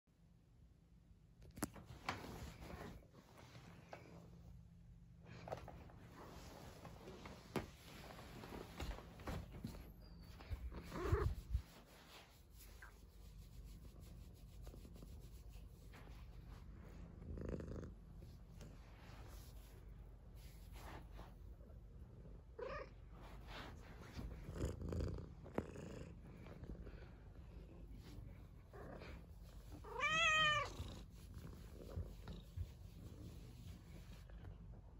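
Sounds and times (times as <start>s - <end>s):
rustling scrape: 1.8s - 4.0s, 5.4s - 17.0s, 23.1s - 24.5s
faint scratching: 5.4s - 21.9s, 22.6s - 34.7s
cat purring: 6.4s - 34.9s
fur rubbing against carpet: 10.4s - 16.8s
cat meow: 29.8s - 30.7s.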